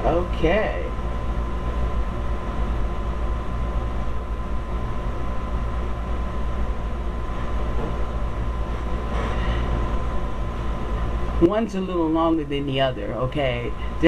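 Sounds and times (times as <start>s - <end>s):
faint high hum: 0.0s - 14.0s
low room rumble: 0.0s - 14.0s.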